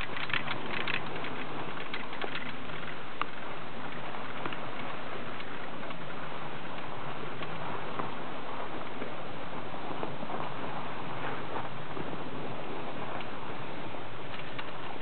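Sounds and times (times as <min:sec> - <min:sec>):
light clicks and crackles: 0:00.0 - 0:09.2, 0:13.1 - 0:15.0
skis sliding on snow: 0:00.0 - 0:15.0.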